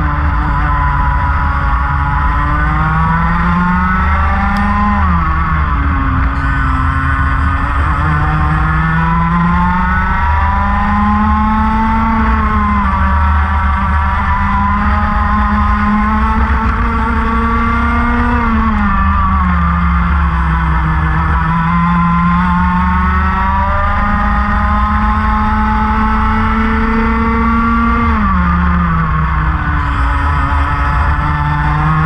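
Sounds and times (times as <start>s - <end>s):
racing kart engine revving: 0.0s - 32.0s.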